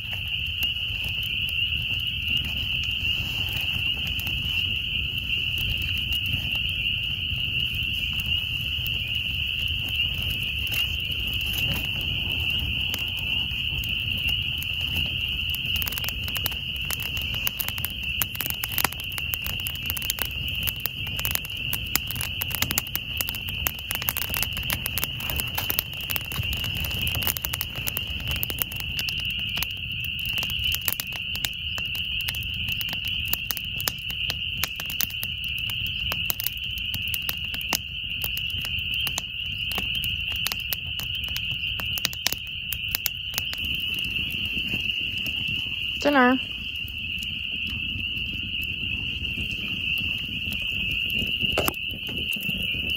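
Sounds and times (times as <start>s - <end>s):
chorus of frogs peeping: 0.0s - 52.9s
sharp clicks and pops: 0.0s - 52.9s.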